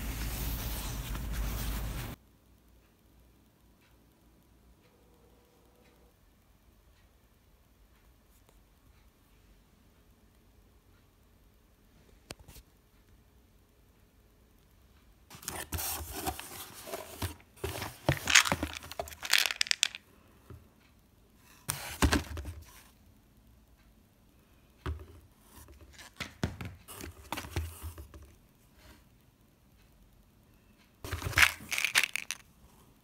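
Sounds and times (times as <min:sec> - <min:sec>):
rummaging in cardboard box: 0:15.3 - 0:19.9, 0:31.1 - 0:32.3
plastic bottles handled: 0:15.3 - 0:20.0, 0:31.1 - 0:32.4.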